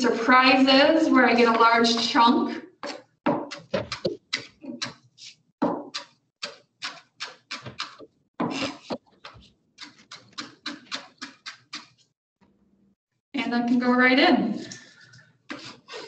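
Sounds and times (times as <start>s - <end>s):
knife chopping on cutting board: 2.8s - 5.0s, 5.6s - 11.9s.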